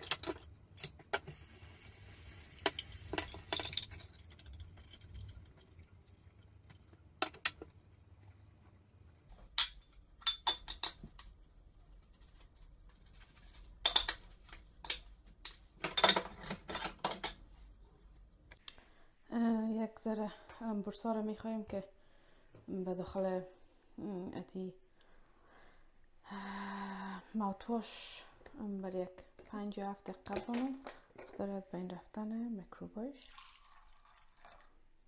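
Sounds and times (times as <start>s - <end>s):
bathroom items clinking on counter: 13.8s - 17.4s, 30.2s - 31.5s.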